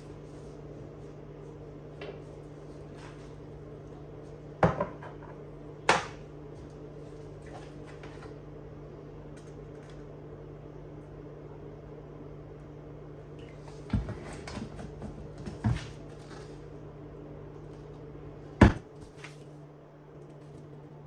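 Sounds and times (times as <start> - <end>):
steady low hum: 0.0 - 21.0
ceramic bowl knocking on counter: 4.6 - 5.2.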